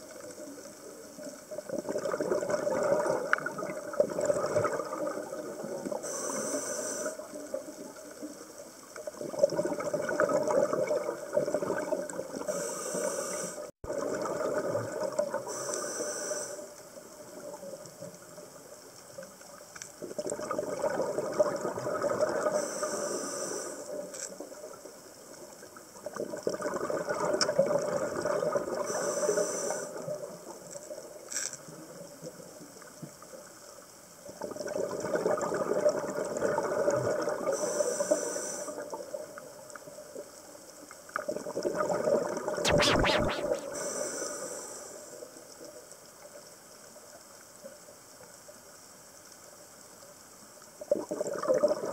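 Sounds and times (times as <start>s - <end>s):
exhaled bubbles rumbling: 1.6s - 6.0s, 9.2s - 12.4s
regulator inhale hiss: 6.0s - 7.4s, 12.5s - 13.7s, 15.5s - 16.8s, 22.5s - 24.1s, 28.8s - 30.1s, 37.5s - 39.0s, 42.8s - 45.4s.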